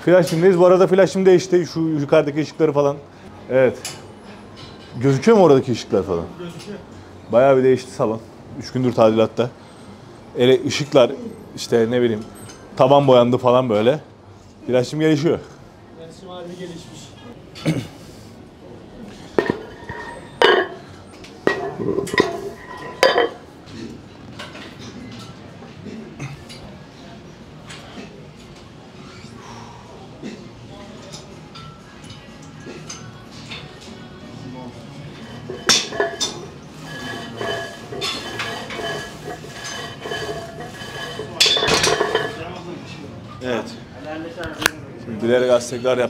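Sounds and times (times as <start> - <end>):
metal gym weights clanking: 19.4 - 20.9, 35.2 - 42.4.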